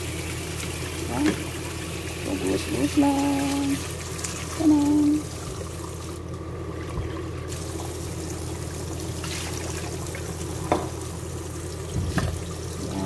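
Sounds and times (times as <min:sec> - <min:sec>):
tap water running into colander: 0:00.0 - 0:13.0.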